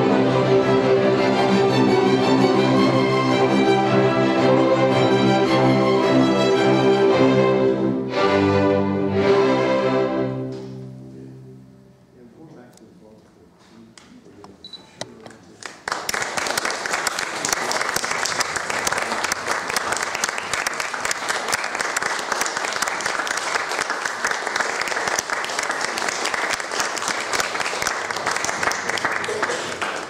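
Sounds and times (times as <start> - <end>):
audience applause: 15.5 - 30.0.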